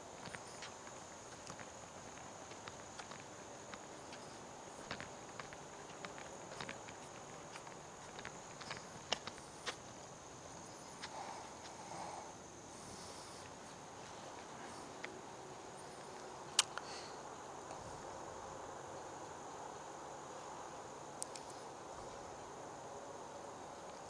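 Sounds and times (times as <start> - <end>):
insects chirring: 0.0 - 24.0
soft hiss: 0.0 - 24.0.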